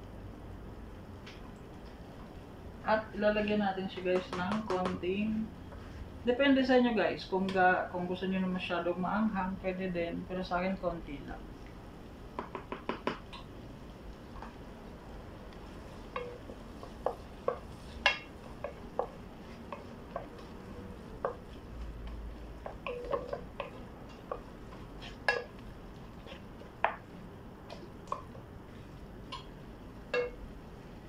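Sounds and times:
wooden spoon scraping a pot: 15.7s - 26.8s.

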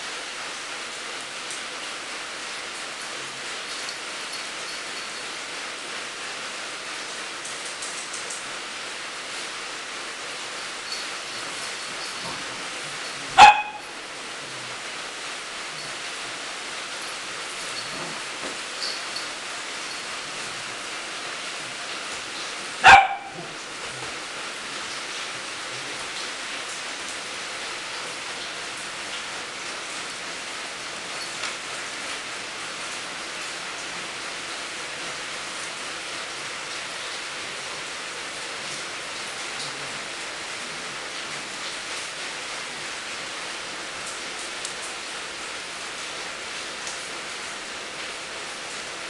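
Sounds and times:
steady hiss: 0.0s - 49.0s
small dog barking: 13.3s - 14.0s, 22.8s - 23.6s.

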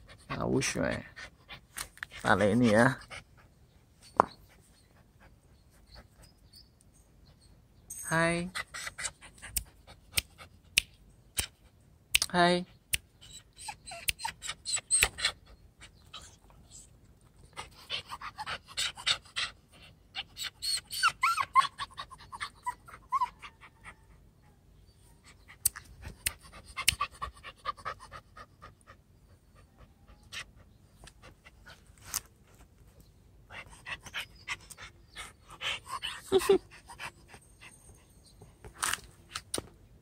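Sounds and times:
puppy panting: 0.0s - 6.6s, 8.5s - 10.8s, 13.2s - 24.3s, 25.2s - 32.0s, 33.5s - 38.5s.

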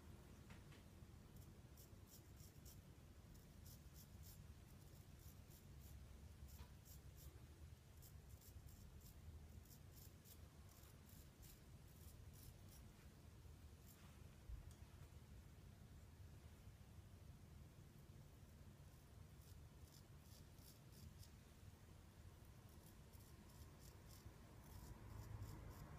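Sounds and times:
razor scraping stubble: 8.0s - 12.9s, 19.4s - 21.4s, 22.7s - 25.9s.

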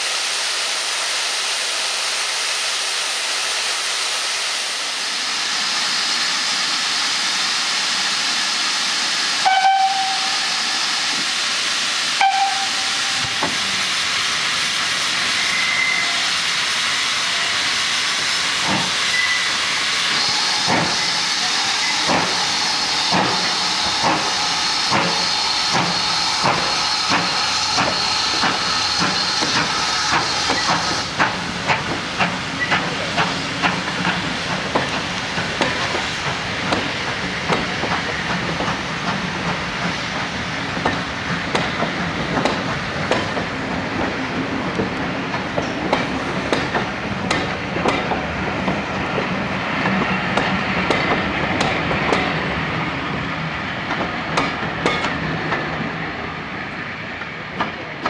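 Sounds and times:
steam hissing: 0.0s - 57.1s
steam locomotive whistle blasts: 9.4s - 10.8s, 12.2s - 13.5s, 15.4s - 16.3s.

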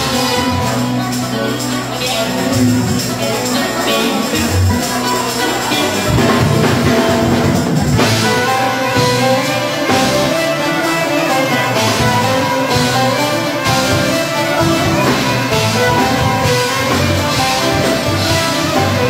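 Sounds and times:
live band music: 0.0s - 19.0s
violin playing: 8.0s - 19.0s.

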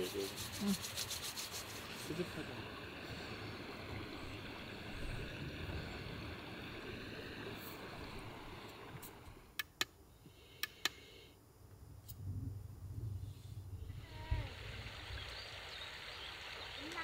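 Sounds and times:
stream water rushing: 0.1s - 9.5s, 14.1s - 17.0s.

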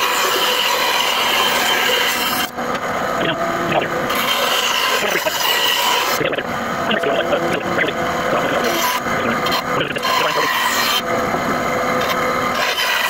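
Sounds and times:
rasping on wood: 4.1s - 6.2s, 8.4s - 11.0s.

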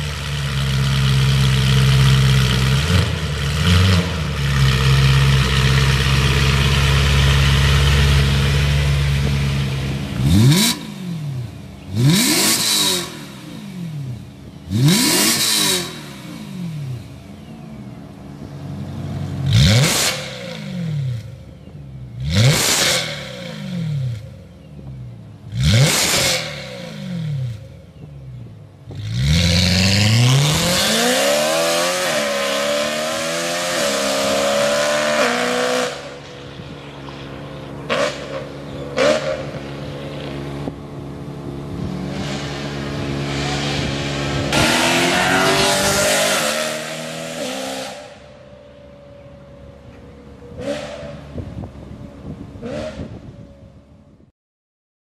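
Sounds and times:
car engine revving: 0.0s - 21.5s, 22.1s - 48.5s, 49.6s - 53.3s
car accelerating away: 28.9s - 51.8s.

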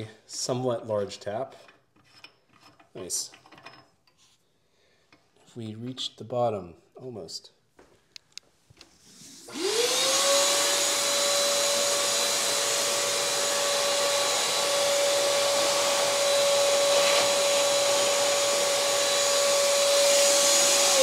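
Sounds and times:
shop vacuum running: 9.1s - 21.0s.

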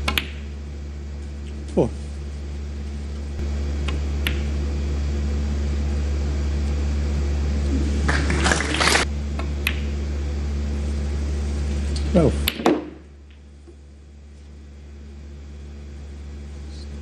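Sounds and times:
snooker balls clicking: 0.0s - 0.5s, 3.8s - 4.6s, 8.1s - 9.9s, 12.0s - 13.8s
loud low hum: 0.0s - 17.0s.

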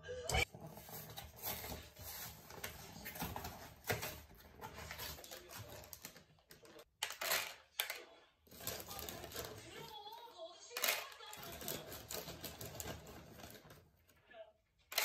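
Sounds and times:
cardboard box rustling: 0.5s - 6.2s
pellets clicking into plastic tub: 3.8s - 10.0s, 10.7s - 13.8s
plastic bag crinkling: 8.5s - 14.0s.

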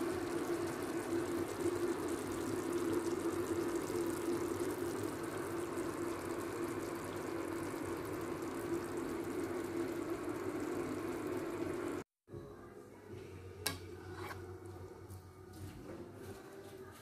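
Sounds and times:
stovetop rushing and hum: 0.0s - 12.1s, 13.0s - 16.9s.

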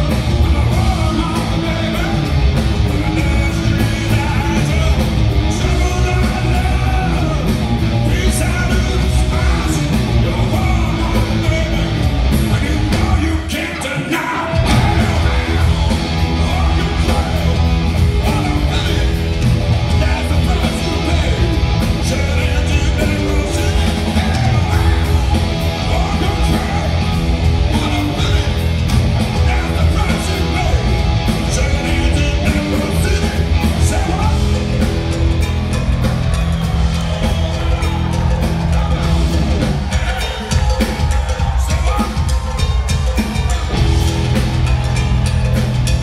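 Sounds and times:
man shouting lead vocal: 0.0s - 34.8s
bass guitar: 0.0s - 46.0s
distorted electric guitars: 0.0s - 46.0s
drum kit: 0.0s - 46.0s.

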